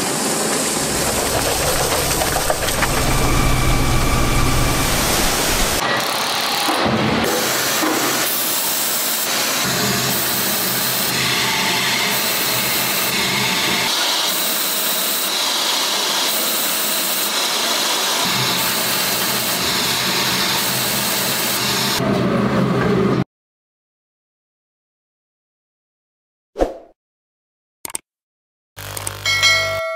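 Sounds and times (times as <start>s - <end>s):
lathe cutting hiss: 0.0s - 5.8s
low machine hum: 0.5s - 5.8s.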